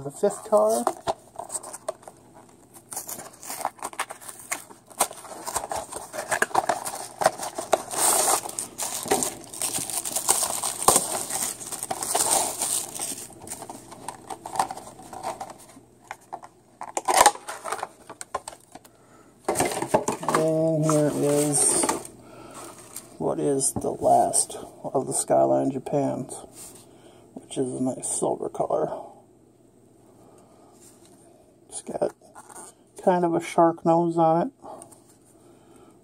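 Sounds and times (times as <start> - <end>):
packaging rustling and tearing: 0.2 - 18.8.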